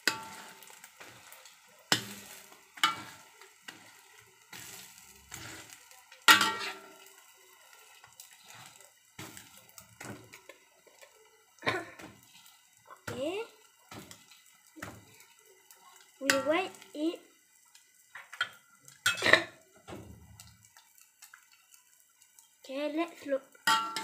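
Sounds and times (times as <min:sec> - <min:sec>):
metal spatula scraping a wok: 0:00.0 - 0:07.2, 0:07.8 - 0:10.6, 0:11.6 - 0:13.2, 0:19.0 - 0:19.6.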